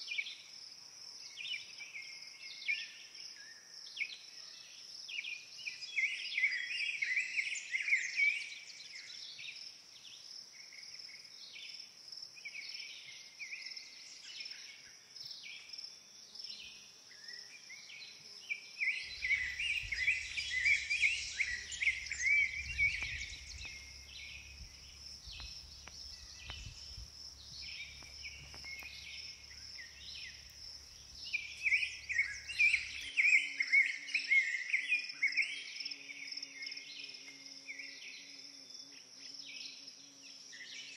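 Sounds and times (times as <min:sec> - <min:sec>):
songbirds chirping: 0:16.3 - 0:35.1
high-pitched insect trill: 0:18.8 - 0:40.9
low rumble: 0:19.1 - 0:32.4.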